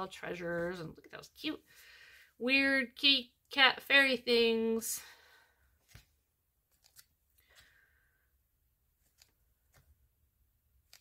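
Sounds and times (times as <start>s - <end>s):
paper rustling and tapping: 5.8s - 7.6s.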